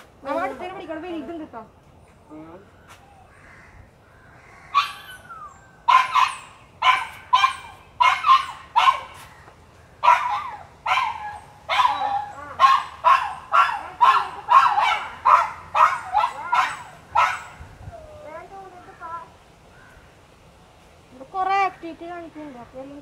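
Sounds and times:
dog barking: 0:05.9 - 0:09.2, 0:10.0 - 0:17.6.

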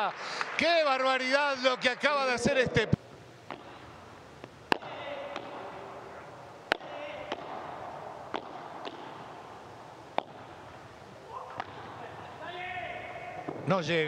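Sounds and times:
ball bouncing off court: 0:03.4 - 0:06.1, 0:06.7 - 0:10.8, 0:11.5 - 0:12.1, 0:13.3 - 0:13.7
paddle rackets striking ball: 0:03.4 - 0:12.3, 0:12.9 - 0:13.7.

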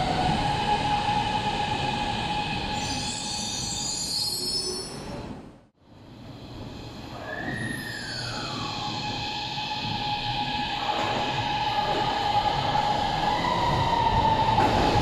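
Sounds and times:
train rumble: 0:05.1 - 0:15.0
train inverter whine: 0:05.8 - 0:15.0.

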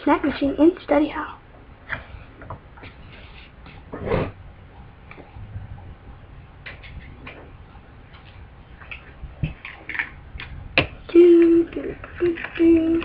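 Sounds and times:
plastic dolls clicking and tapping: 0:08.8 - 0:13.0.

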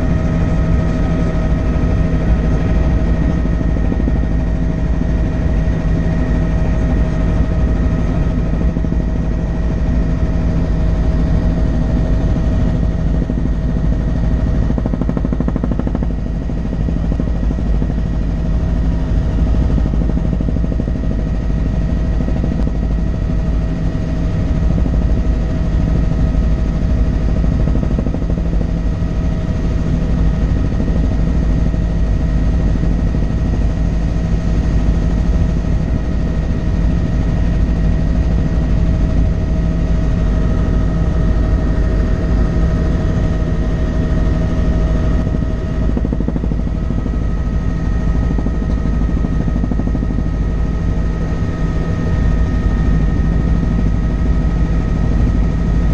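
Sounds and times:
helicopter drone inside cabin: 0:00.0 - 0:55.9.

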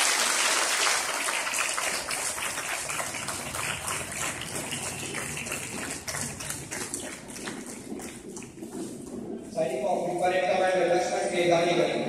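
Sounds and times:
audience applause: 0:00.0 - 0:07.2.

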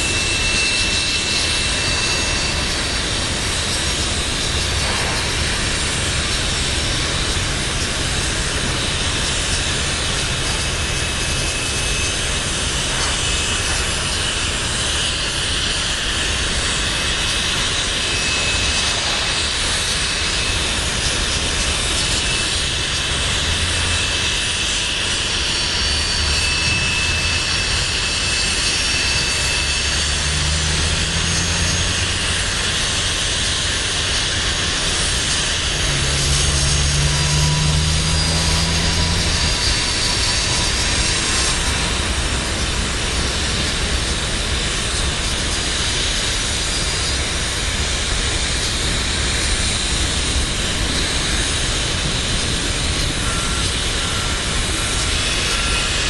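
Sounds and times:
thin high squeals: 0:00.0 - 0:04.8, 0:21.7 - 0:42.8, 0:52.6 - 0:56.0
steel wheels rolling on rail: 0:00.0 - 0:56.0
low hum: 0:17.4 - 0:56.0.

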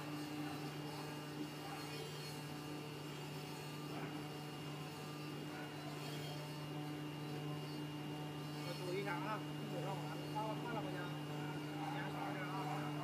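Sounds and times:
foam cutting machine hum: 0:00.0 - 0:13.0.

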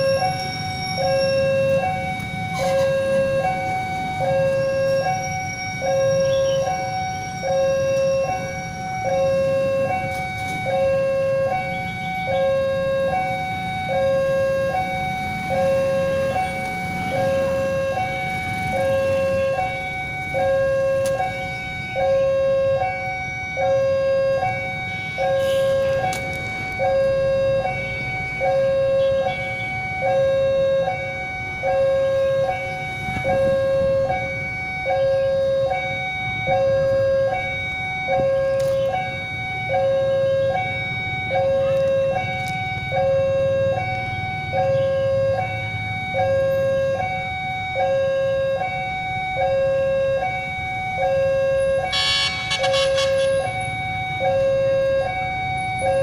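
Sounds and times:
road traffic rumble: 0:00.0 - 0:56.0
two-tone level crossing alarm: 0:00.0 - 0:56.0
short shrill burst: 0:51.9 - 0:53.5.

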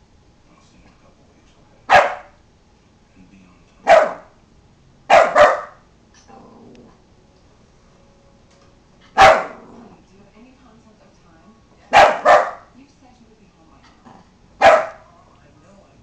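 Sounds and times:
dog barking: 0:01.9 - 0:02.4, 0:03.8 - 0:04.4, 0:05.1 - 0:05.8, 0:09.1 - 0:09.7, 0:11.9 - 0:12.8, 0:14.6 - 0:15.1.

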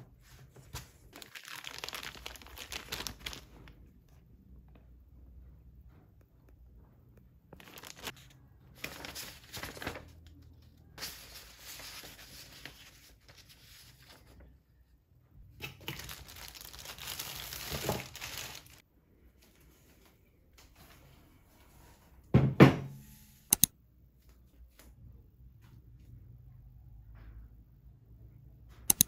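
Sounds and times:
plastic bag crinkling: 0:01.2 - 0:03.7, 0:07.6 - 0:08.2, 0:15.9 - 0:18.8
paper and cardboard rustling: 0:07.6 - 0:08.2, 0:08.8 - 0:10.2, 0:11.0 - 0:14.4.

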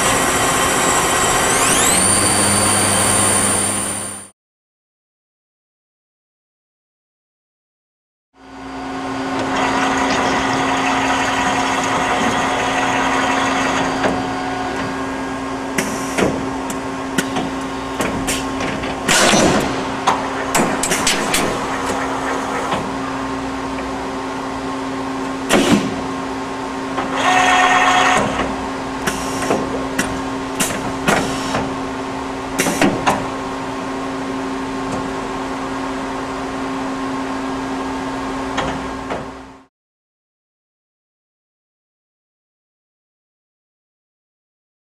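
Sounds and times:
machine hum: 0:00.0 - 0:04.3, 0:08.4 - 0:39.7
machine whine: 0:00.0 - 0:04.3, 0:08.4 - 0:39.7.

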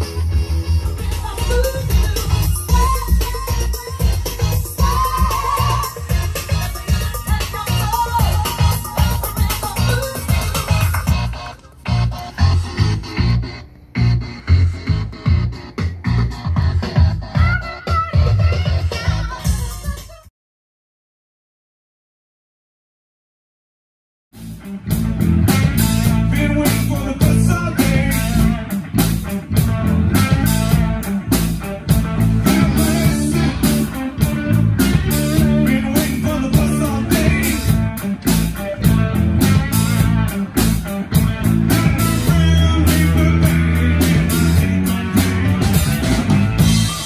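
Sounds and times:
electric bass: 0:00.0 - 0:19.4, 0:24.4 - 0:47.0
drum kit beat: 0:00.0 - 0:20.3, 0:24.4 - 0:47.0
electric guitar: 0:24.4 - 0:47.0.

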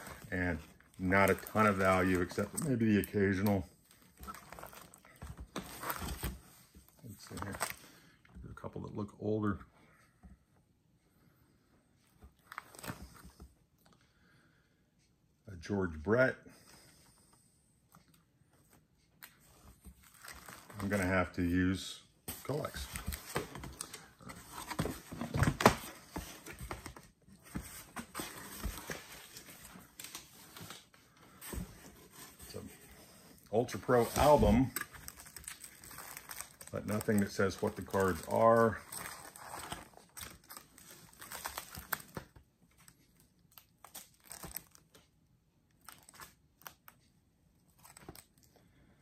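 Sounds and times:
plastic sleeve pages crinkling: 0:00.0 - 0:03.6, 0:19.9 - 0:21.6, 0:33.5 - 0:45.1, 0:45.8 - 0:47.0, 0:47.7 - 0:48.5
binder albums scraping and rustling: 0:22.3 - 0:42.2.

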